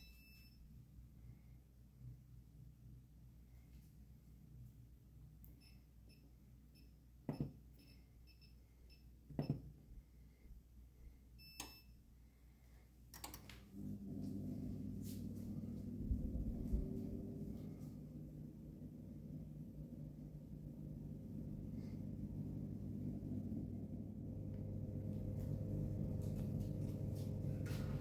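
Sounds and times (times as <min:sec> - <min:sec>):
long beep: 0:00.0 - 0:00.6
appliance short beeps: 0:11.4 - 0:12.0
appliance humming: 0:13.1 - 0:28.0.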